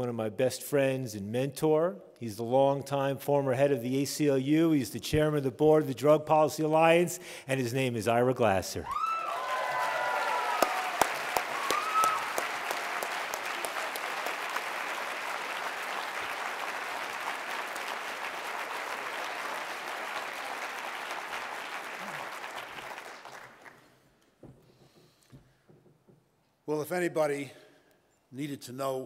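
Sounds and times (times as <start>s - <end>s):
audience applauding: 9.0s - 24.1s.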